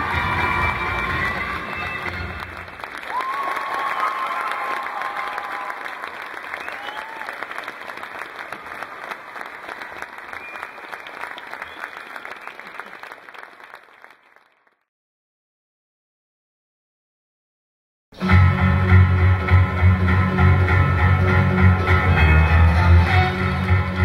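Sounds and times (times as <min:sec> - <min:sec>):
audience applauding: 0:00.0 - 0:14.9.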